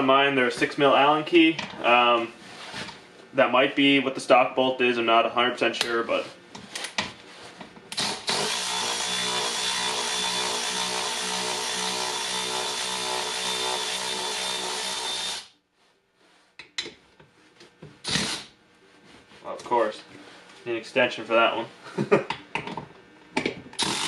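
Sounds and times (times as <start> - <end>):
cordless electric ratchet running: 8.0 - 15.5, 18.0 - 18.5, 23.8 - 24.0.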